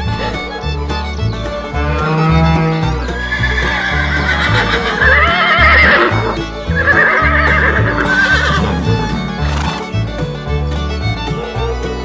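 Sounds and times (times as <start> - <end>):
horse whinnying: 1.9 - 9.9.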